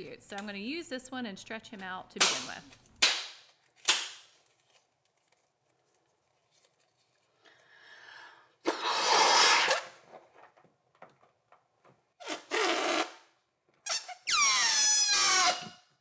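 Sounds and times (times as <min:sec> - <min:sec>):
breaths blowing up balloon: 0:07.4 - 0:09.9, 0:12.2 - 0:13.2
balloon neck squealing: 0:08.7 - 0:10.0, 0:12.2 - 0:13.2, 0:13.8 - 0:15.9.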